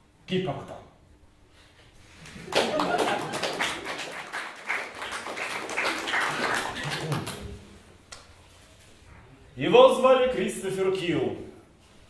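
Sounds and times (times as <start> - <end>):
audience clapping: 2.2 - 7.7.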